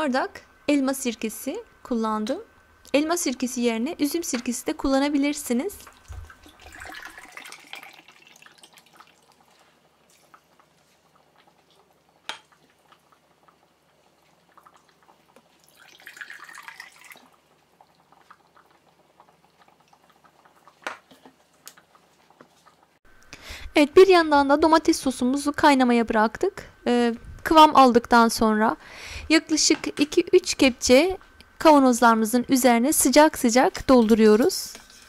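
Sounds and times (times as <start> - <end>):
vinegar pouring into jars: 5.9 - 9.4, 15.6 - 17.4.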